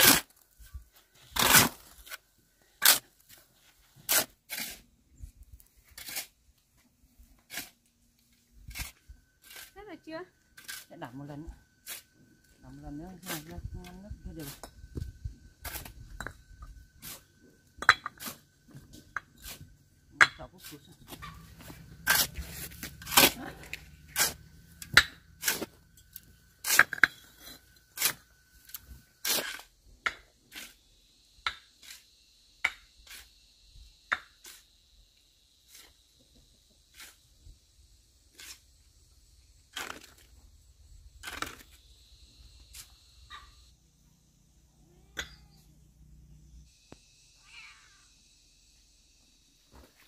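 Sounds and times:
tool scraping wet cement: 0:00.0 - 0:00.5, 0:01.2 - 0:02.2, 0:02.8 - 0:04.9, 0:05.6 - 0:06.6, 0:07.3 - 0:09.8, 0:10.5 - 0:11.0, 0:11.8 - 0:12.2, 0:18.1 - 0:30.8, 0:33.0 - 0:33.3, 0:36.9 - 0:37.3, 0:38.3 - 0:38.7, 0:41.2 - 0:41.8.

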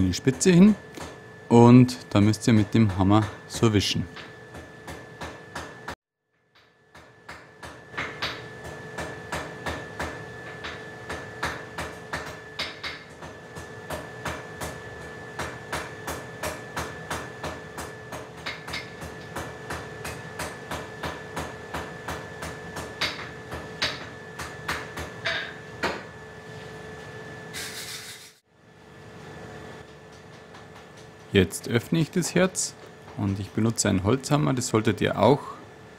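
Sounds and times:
hammer striking hot iron on anvil: 0:06.6 - 0:26.1.

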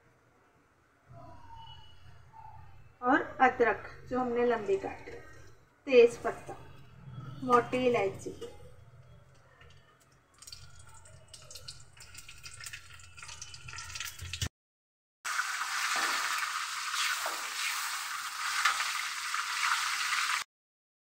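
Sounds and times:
spices frying in hot oil: 0:10.3 - 0:14.5, 0:15.3 - 0:20.4.

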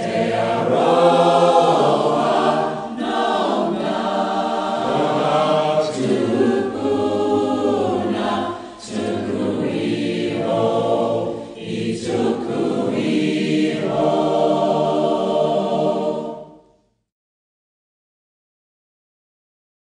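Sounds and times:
choir singing held chords: 0:00.0 - 0:16.8.

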